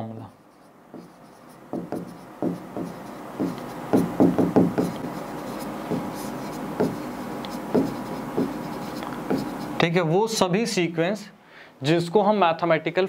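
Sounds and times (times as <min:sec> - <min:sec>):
pen scratching on board: 0:00.5 - 0:09.8.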